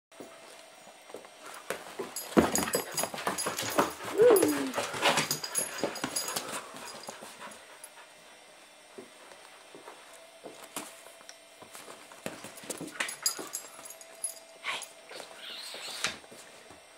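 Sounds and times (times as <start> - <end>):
knocks and rustling on couch: 1.8 - 4.1
puppy whining: 3.6 - 6.4, 14.6 - 16.2.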